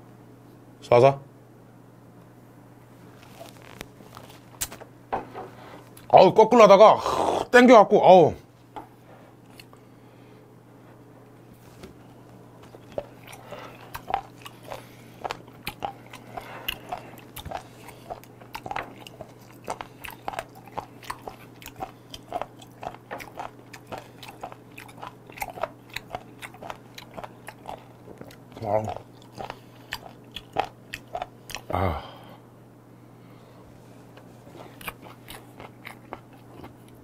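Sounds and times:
steady low hum: 0.0s - 37.0s
person chewing: 9.4s - 9.8s, 12.6s - 32.2s, 34.0s - 37.0s.

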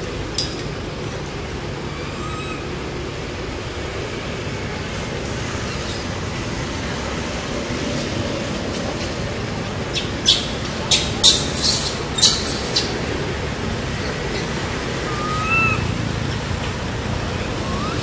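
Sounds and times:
low rumbling background noise: 0.0s - 18.0s.

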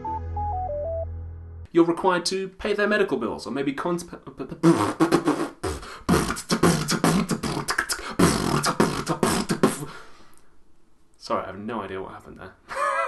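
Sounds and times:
man making vocal noises: 4.5s - 10.0s.

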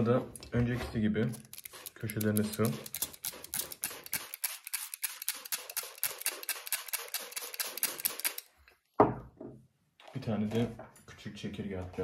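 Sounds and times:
spray bottle hissing sprays: 1.4s - 8.4s.

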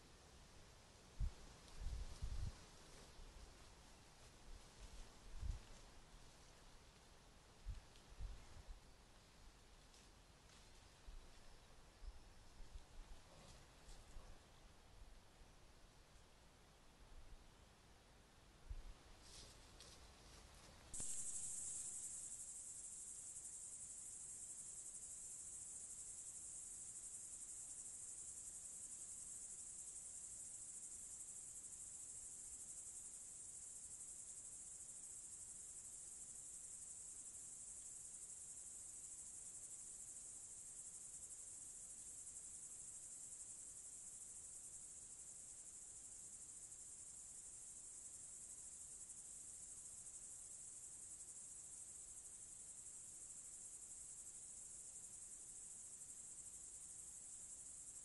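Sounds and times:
crickets trilling: 21.0s - 58.0s.

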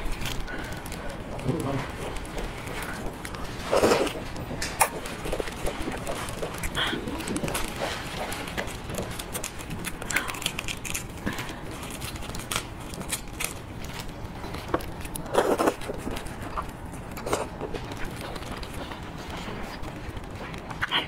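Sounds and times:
sucking and chewing: 0.0s - 21.0s.

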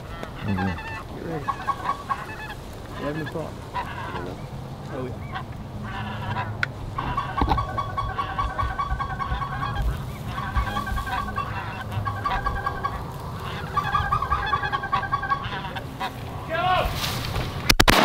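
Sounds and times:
wind rumble on microphone: 0.0s - 15.0s
geese honking: 0.0s - 16.8s.

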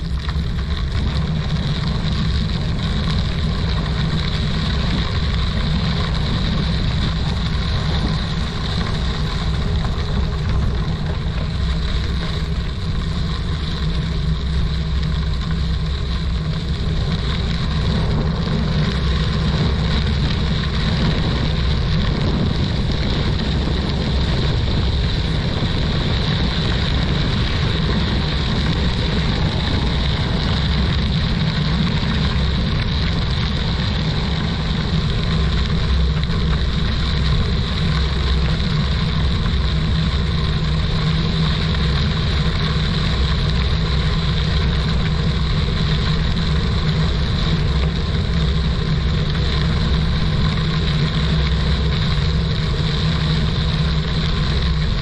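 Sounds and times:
bicycle tyre noise: 0.0s - 55.0s
wind buffeting microphone: 0.0s - 55.0s.

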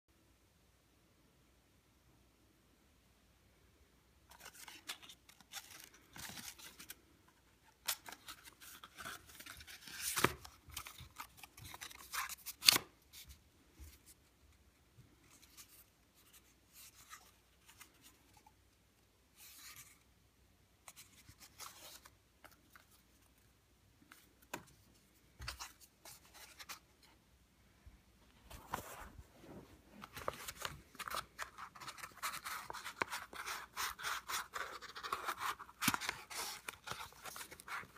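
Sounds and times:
paper rustling and scraping: 28.4s - 37.9s.

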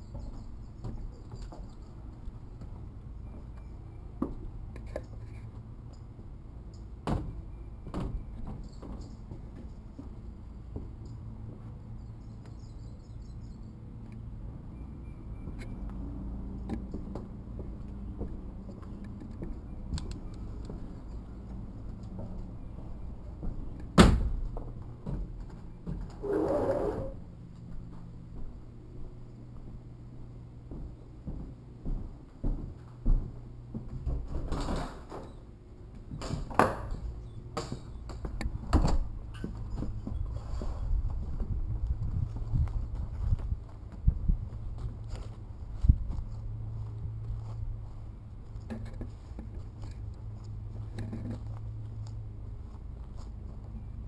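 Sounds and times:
front door opening and shutting: 23.9s - 24.4s, 38.7s - 39.9s
footsteps on hardwood floors: 30.7s - 34.3s.

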